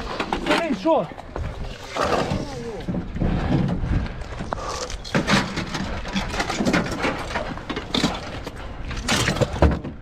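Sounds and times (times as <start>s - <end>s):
gear clattering in truck bed: 5.0s - 10.0s.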